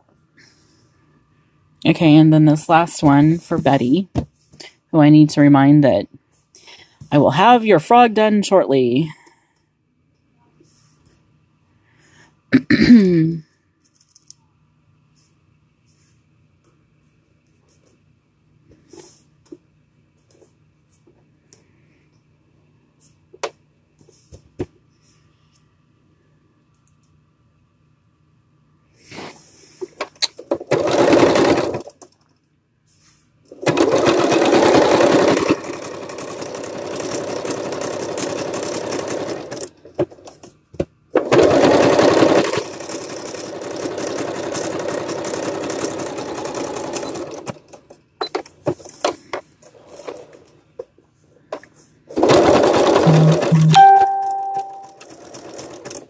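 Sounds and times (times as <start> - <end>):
electric sewing machine stitching: 30.5 - 32.0, 33.5 - 40.3, 41.2 - 47.9, 52.1 - 56.0.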